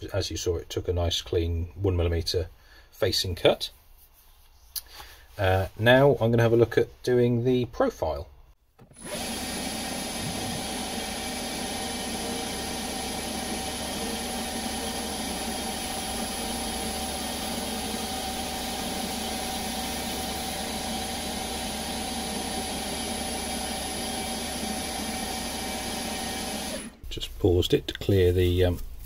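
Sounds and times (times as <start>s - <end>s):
motor hum: 8.8s - 27.1s
lathe cutting with high whine: 8.9s - 27.0s.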